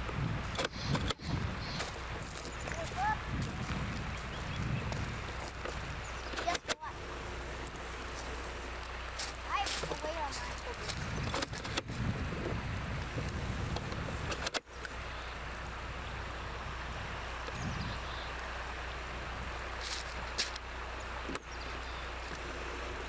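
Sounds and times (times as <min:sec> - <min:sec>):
constant low hum: 0:00.0 - 0:23.0
rushing outdoor noise: 0:00.0 - 0:23.0.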